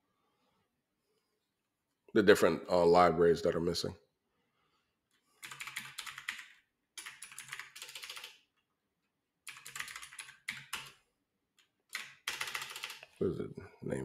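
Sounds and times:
typing on a computer keyboard: 5.4 - 8.6, 9.4 - 11.0, 11.6 - 13.2.

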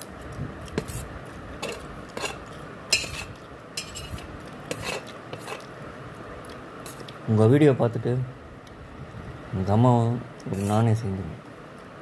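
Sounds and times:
fork scraping and clinking on steel plate: 1.6 - 5.7.

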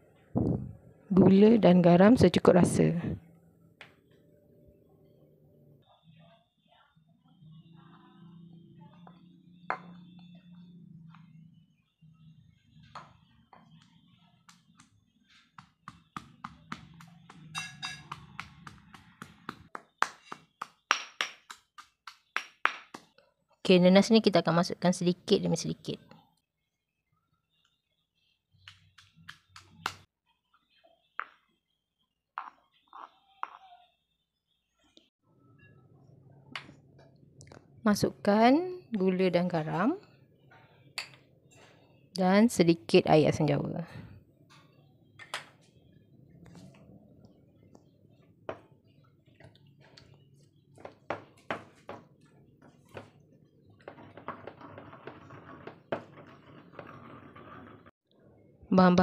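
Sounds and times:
stone pestle knocking on mortar: 15.6 - 23.0.

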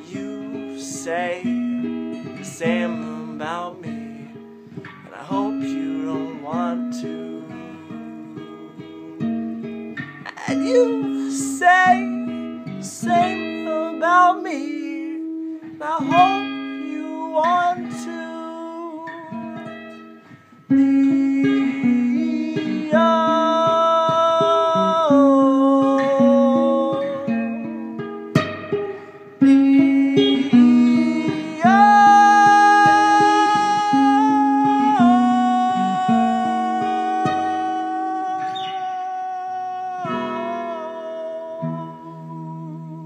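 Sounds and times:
man singing: 0.0 - 4.4, 5.0 - 9.6, 10.2 - 20.1, 20.7 - 28.0, 29.4 - 43.0
acoustic guitar strumming: 0.0 - 43.0.

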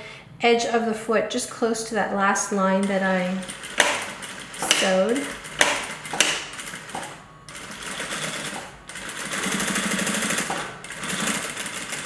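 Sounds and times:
sewing machine stitching: 2.8 - 12.0.

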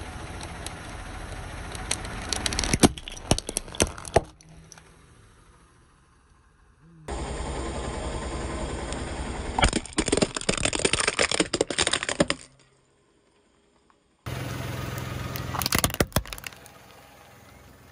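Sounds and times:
car engine hum: 0.0 - 17.9
plastic toys cracking under tyre: 1.7 - 4.8, 9.6 - 12.7, 15.3 - 16.9.

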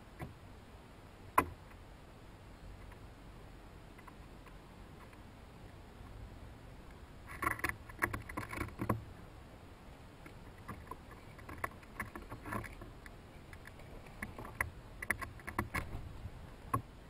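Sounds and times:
chipmunks crackling and clicking corn: 7.2 - 9.0, 10.2 - 15.9.

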